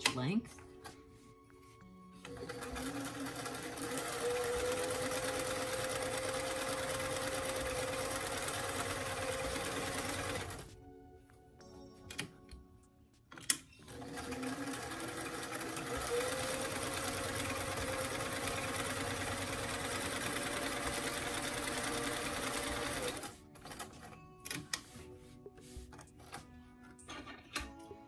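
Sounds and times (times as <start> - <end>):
sewing machine running: 2.3 - 10.6, 13.9 - 23.8.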